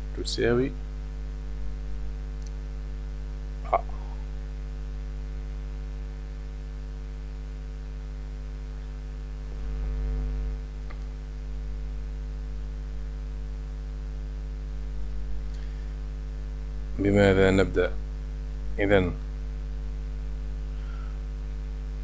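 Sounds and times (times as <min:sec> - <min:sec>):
electrical mains hum: 0:00.0 - 0:22.0
faint click: 0:02.4 - 0:02.6.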